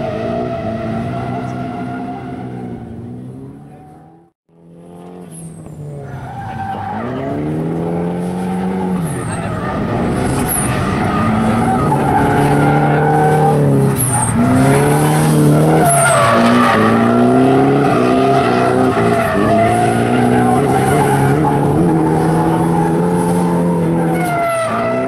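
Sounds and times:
car engine revving hard: 0.0 - 25.0
tyre screech: 5.3 - 7.5, 8.4 - 25.0.

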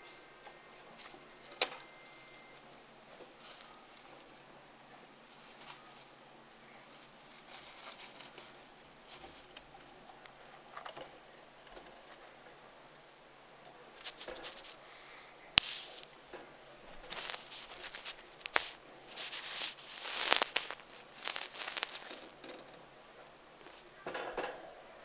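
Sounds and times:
rodent scurrying on cage floor: 14.0 - 14.8, 17.0 - 22.6.

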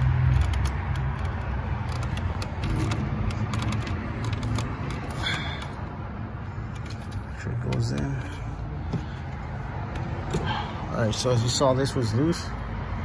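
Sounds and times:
plastic connector clicks and rattles: 0.0 - 5.2.

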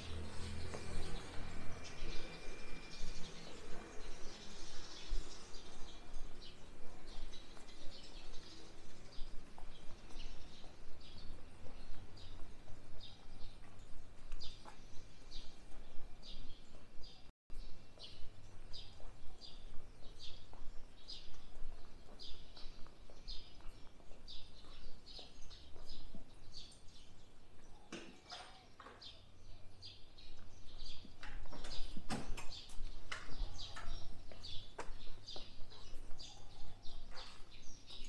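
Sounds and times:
birds chirping: 0.0 - 38.0.

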